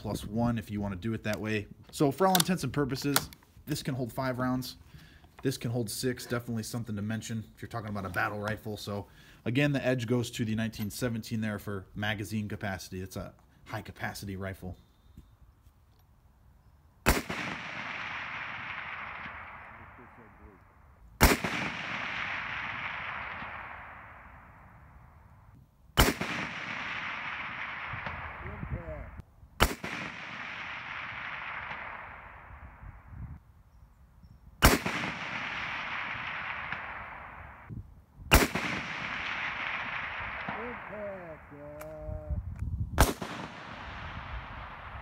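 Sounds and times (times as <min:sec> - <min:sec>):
rifle shots with echo: 0:17.0 - 0:20.6, 0:21.2 - 0:25.2, 0:26.0 - 0:32.8, 0:34.6 - 0:37.7, 0:38.3 - 0:42.0, 0:43.0 - 0:45.0.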